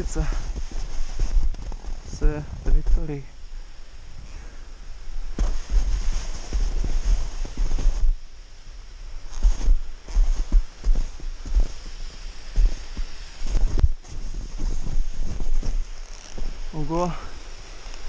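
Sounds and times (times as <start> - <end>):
crunchy scrapes in snow: 0.0 - 3.2, 5.2 - 8.2, 9.1 - 18.0
snowboard thumping in snow: 5.3 - 8.2, 9.3 - 16.6
wind buffeting microphone: 9.2 - 16.8.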